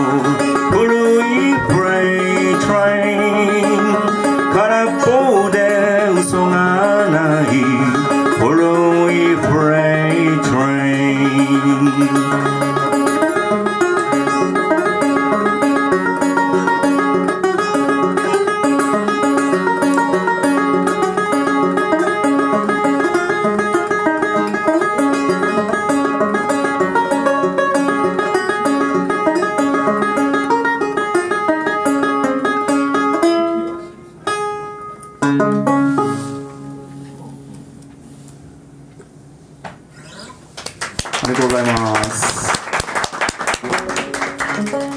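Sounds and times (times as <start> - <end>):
banjo picking: 0.0 - 37.9, 43.0 - 44.9.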